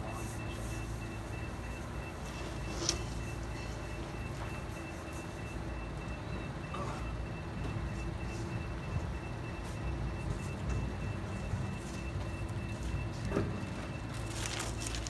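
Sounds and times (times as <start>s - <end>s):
cardboard sheets rustling: 14.1s - 15.0s.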